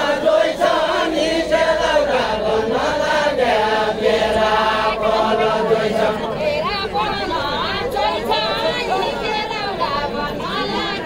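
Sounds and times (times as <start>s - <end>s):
men chanting a folk song: 0.0s - 11.0s.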